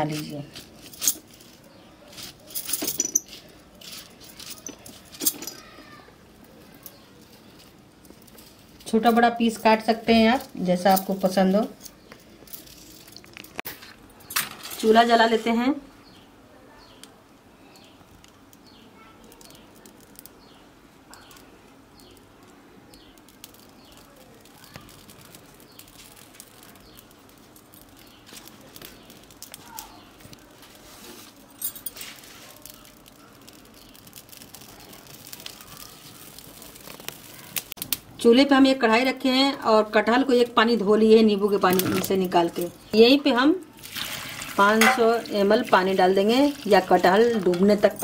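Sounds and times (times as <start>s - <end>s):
faint scattered clicks: 17.0s - 30.5s.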